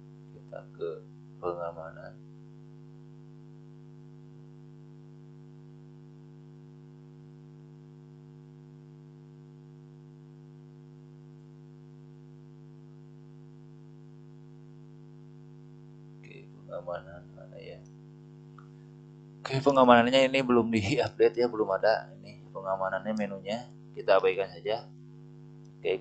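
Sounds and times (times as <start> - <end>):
electrical mains hum: 0.0 - 26.0.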